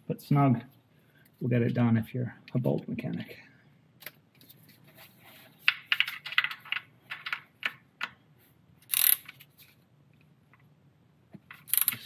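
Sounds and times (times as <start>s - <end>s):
hand ratchet clicking: 8.9s - 9.3s, 11.7s - 12.0s.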